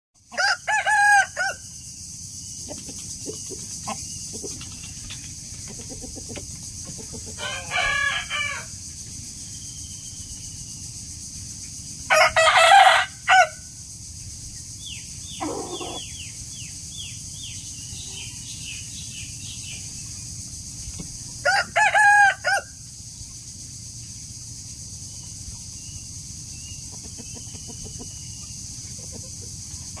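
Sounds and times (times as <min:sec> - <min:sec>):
rooster crowing: 0:00.3 - 0:01.7, 0:07.4 - 0:08.8, 0:12.1 - 0:13.7, 0:15.4 - 0:16.1, 0:21.4 - 0:22.8.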